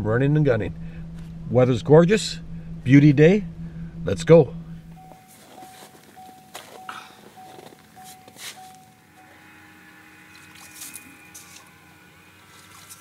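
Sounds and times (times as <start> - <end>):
electronic beeping: 2.8 - 9.5
boots crunching on slush: 5.2 - 8.9, 12.4 - 13.0.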